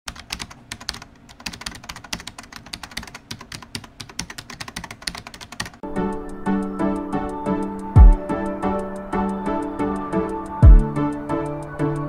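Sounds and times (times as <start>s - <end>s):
rapid irregular clicks: 0.1s - 5.8s
music: 5.8s - 12.0s.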